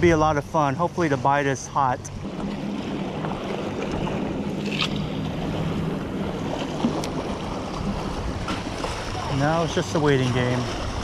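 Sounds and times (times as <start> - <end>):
wind buffeting microphone: 0.0 - 1.4, 2.0 - 11.0
water splashing against rocks: 2.2 - 5.4, 6.4 - 11.0.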